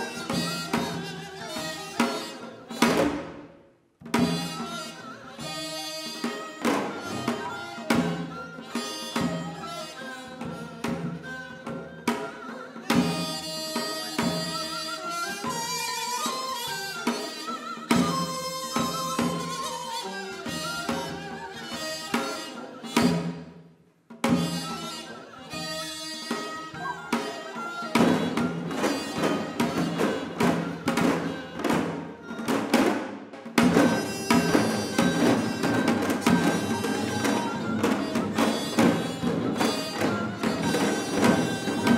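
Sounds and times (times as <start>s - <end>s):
held melody line: 4.3s - 22.9s, 24.4s - 32.5s, 33.7s - 41.9s.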